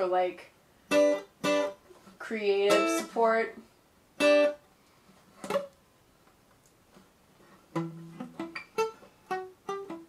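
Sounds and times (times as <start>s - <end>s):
acoustic guitar playing: 0.8s - 3.6s, 4.2s - 4.6s, 5.3s - 5.8s, 7.4s - 10.0s.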